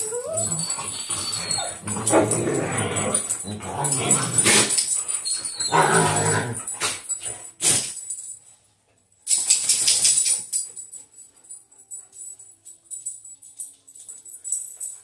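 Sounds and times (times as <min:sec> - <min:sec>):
dogs howling: 0:00.0 - 0:04.4
collar tags jingling: 0:00.0 - 0:15.0.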